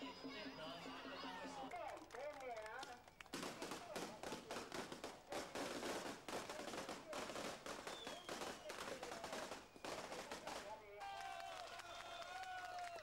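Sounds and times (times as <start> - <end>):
crowd voices: 0.0 - 13.0
firecrackers and fireworks banging: 2.0 - 12.9
falling firework whistle: 7.4 - 10.6.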